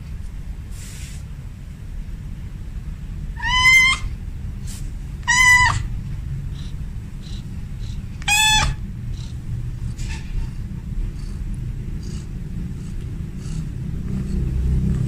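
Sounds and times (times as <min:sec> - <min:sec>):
steady low rumble: 0:00.0 - 0:15.0
cat meowing: 0:03.4 - 0:04.2, 0:05.2 - 0:05.9, 0:08.2 - 0:08.8.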